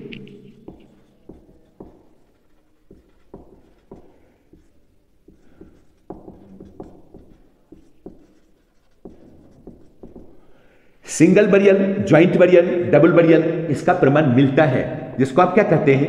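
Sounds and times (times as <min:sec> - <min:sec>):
marker writing on whiteboard: 0:00.0 - 0:11.0.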